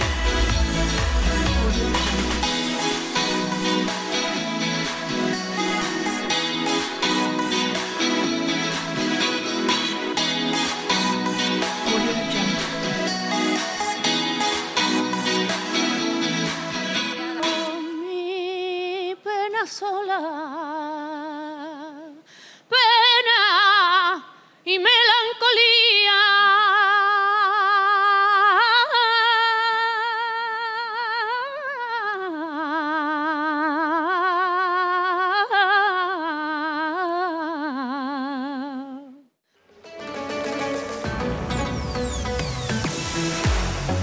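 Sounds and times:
woman singing unaccompanied: 17.1 - 39.3.

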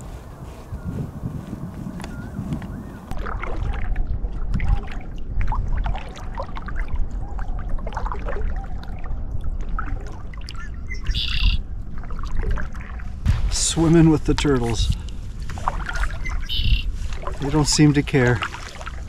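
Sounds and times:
kayak paddle splashing: 1.9 - 19.0
water dripping off paddle: 12.0 - 19.0.

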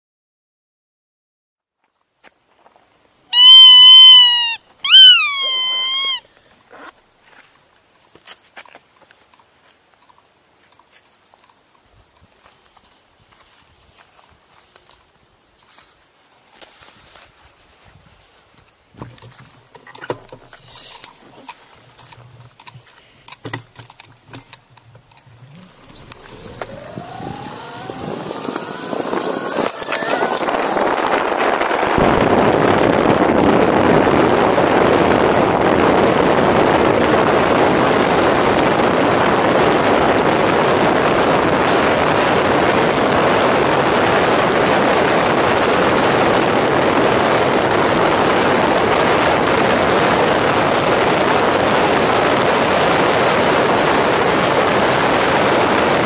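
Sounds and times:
tyres on gravel: 19.0 - 32.4
electric motor whine: 25.7 - 31.5.

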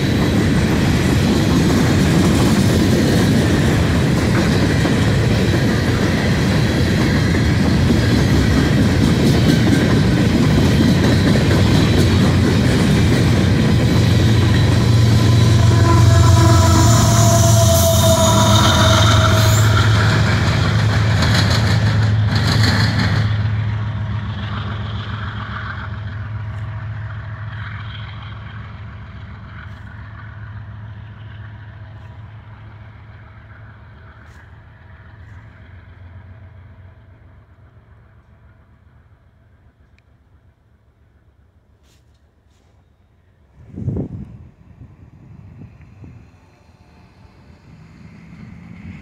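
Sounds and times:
wheels on rails: 0.0 - 37.2
locomotive engine hum: 0.0 - 49.0.

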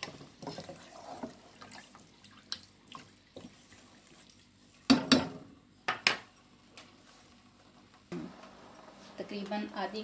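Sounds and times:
spatula stirring wet food: 0.0 - 5.0.

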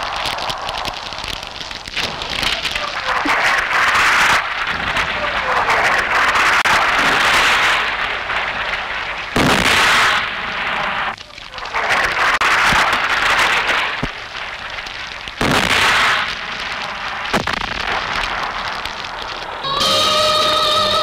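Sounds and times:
gunfire: 0.0 - 19.7
explosions: 0.0 - 21.0
falling whistle: 19.6 - 21.0.

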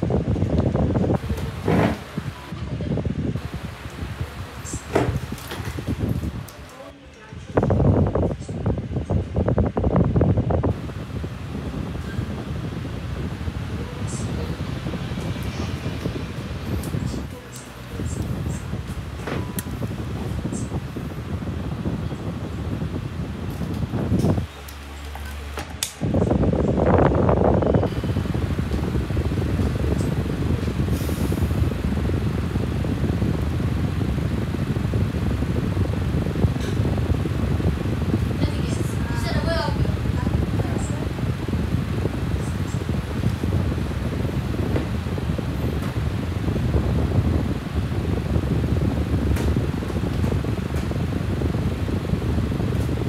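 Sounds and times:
electric fan running: 0.0 - 53.0.

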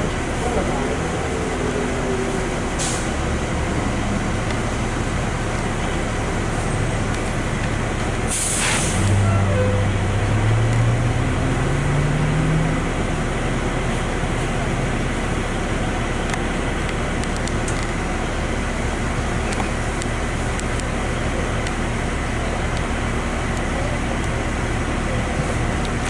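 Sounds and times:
bus engine running: 0.0 - 26.0
air brake hiss: 2.8 - 3.1, 8.3 - 9.1
faint short hiss: 8.3 - 9.0
low hum rising in pitch: 9.1 - 13.6.

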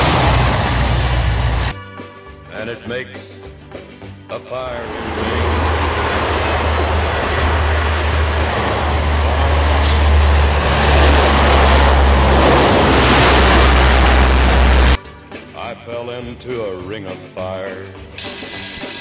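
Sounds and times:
propeller plane landing: 0.0 - 1.7, 4.8 - 15.0.

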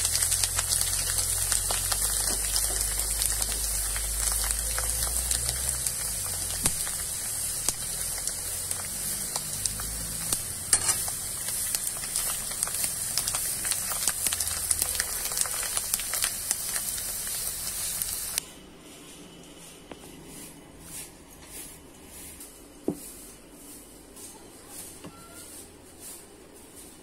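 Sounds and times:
rice sizzling in hot oil: 0.0 - 18.5.

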